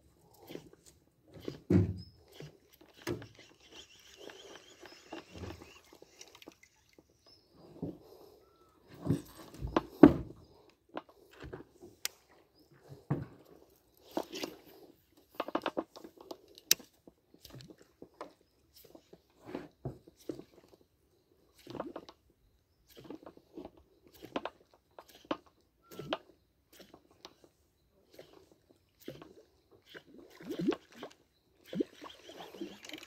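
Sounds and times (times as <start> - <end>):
popper lure crackling bursts: 2.9 - 6.9.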